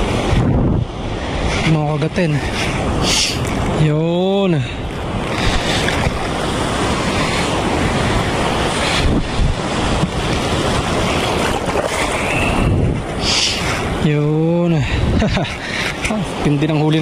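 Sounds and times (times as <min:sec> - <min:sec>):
surf breaking over rocks: 0:00.0 - 0:17.0
wind buffeting microphone: 0:00.0 - 0:17.0.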